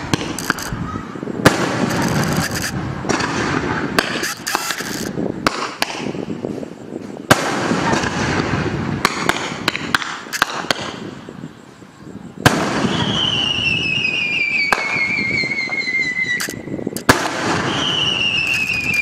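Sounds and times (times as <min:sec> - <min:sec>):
fireworks crackling and banging: 0:00.0 - 0:11.3, 0:12.4 - 0:19.0
falling firework whistle: 0:12.5 - 0:19.0.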